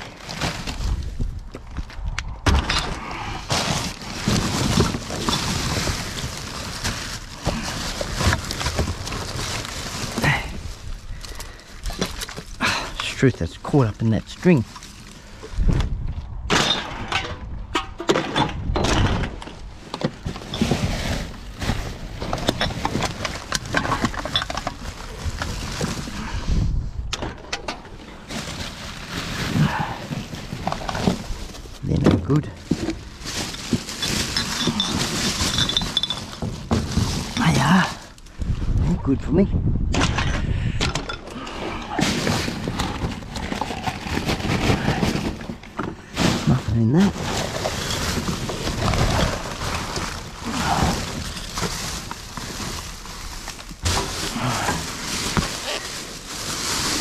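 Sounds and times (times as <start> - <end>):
rubbish handled in a dumpster: 0.0 - 57.0
scraping rustle: 2.9 - 11.2, 19.6 - 26.4, 28.0 - 38.9, 41.9 - 57.0.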